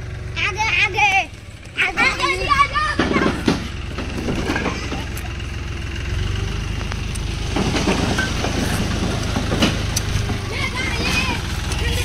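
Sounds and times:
diesel tractor engine running: 0.0s - 12.0s.

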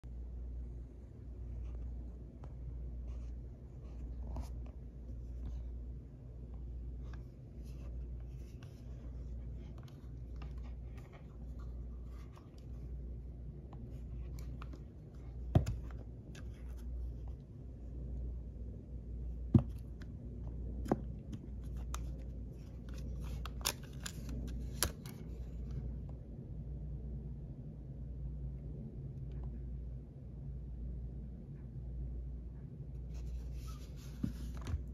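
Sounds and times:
low pulsing hum: 24.3s - 34.9s.

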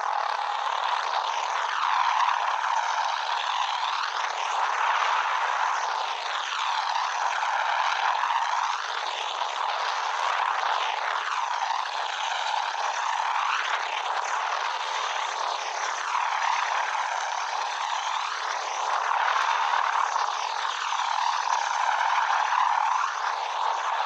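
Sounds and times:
helicopter engine and rotor: 10.0s - 24.0s.

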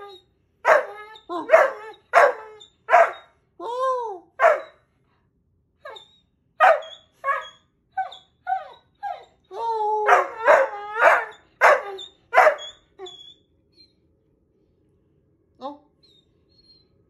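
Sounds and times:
puppy howling and yipping: 0.0s - 3.3s, 5.9s - 13.4s.

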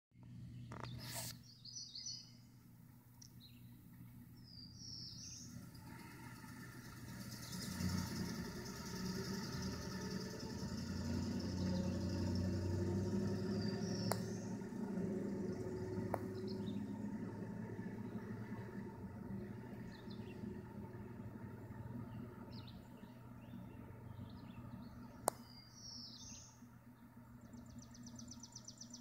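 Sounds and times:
low mechanical hum: 0.2s - 29.0s
high bird chirps: 4.4s - 26.6s.

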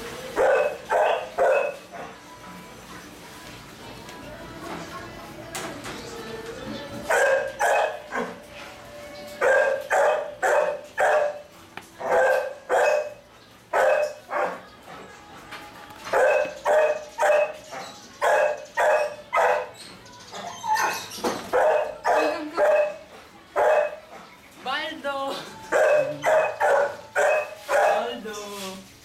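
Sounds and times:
puppies barking: 0.0s - 2.4s, 6.8s - 14.9s, 16.0s - 24.6s, 25.4s - 28.3s.

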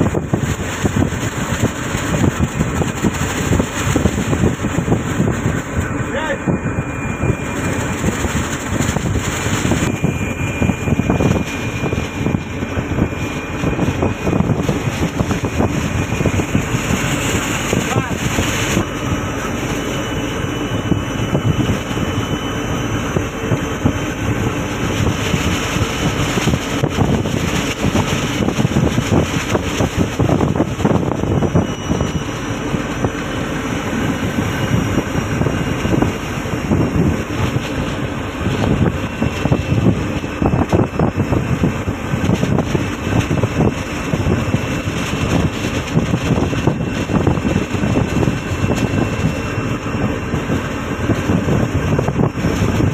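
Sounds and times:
boat engine rumbling: 0.0s - 52.9s
wind buffeting microphone: 0.0s - 52.9s.

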